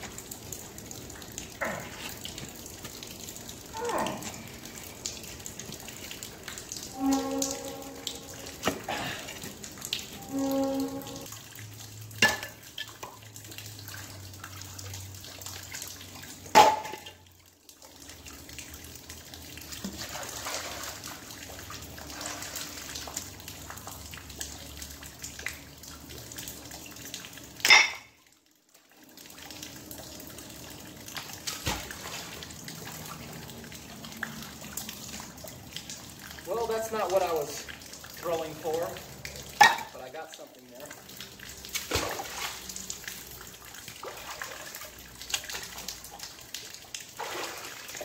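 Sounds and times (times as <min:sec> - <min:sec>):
river water running: 0:36.4 - 0:48.0.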